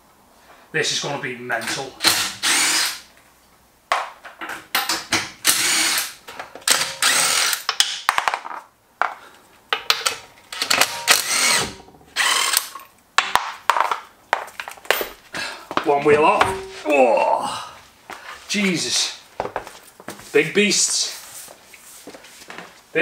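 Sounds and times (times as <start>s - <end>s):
impact wrench bursts: 1.6s - 3.1s, 4.8s - 7.8s, 9.9s - 12.8s.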